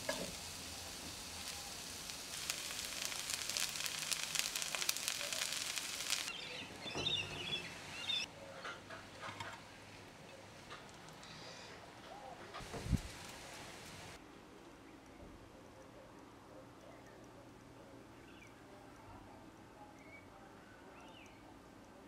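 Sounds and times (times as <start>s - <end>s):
food sizzling in a wok: 0.0s - 8.3s, 12.6s - 14.2s.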